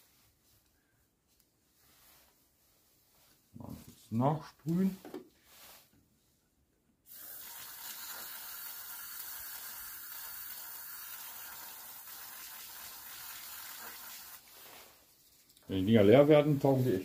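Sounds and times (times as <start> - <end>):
aerosol can spraying hiss: 7.1 - 14.9.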